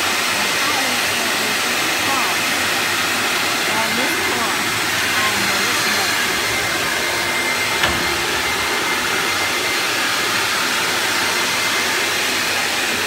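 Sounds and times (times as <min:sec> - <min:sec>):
vacuum dust extractor running: 0:00.0 - 0:13.0
single knock: 0:07.8 - 0:08.5.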